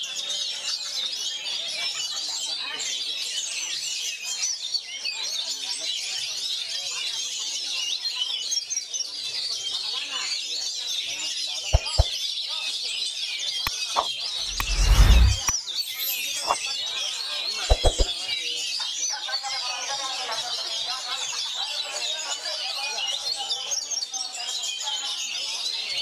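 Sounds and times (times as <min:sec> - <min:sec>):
sharp knocks: 0:11.8 - 0:12.1.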